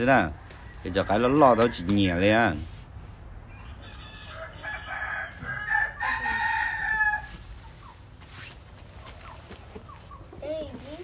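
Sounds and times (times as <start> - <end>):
rooster crowing: 3.5 - 7.4.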